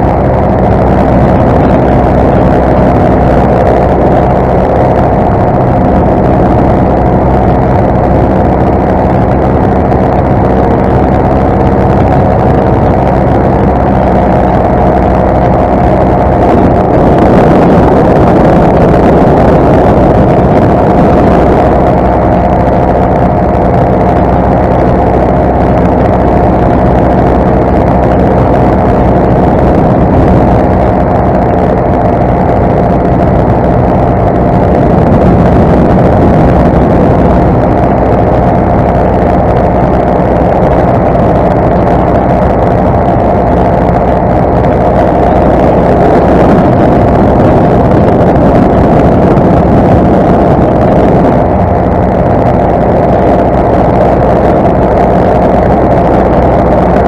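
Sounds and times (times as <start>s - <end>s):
paramotor engine droning: 0.0s - 57.0s.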